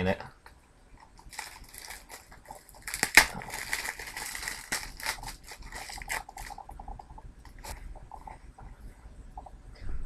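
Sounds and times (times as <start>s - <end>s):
plastic wrap crinkling and tearing: 1.2s - 7.8s.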